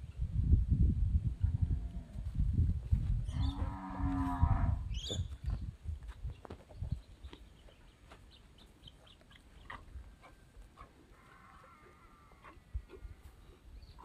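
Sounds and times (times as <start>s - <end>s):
cow mooing: 11.2s - 13.1s.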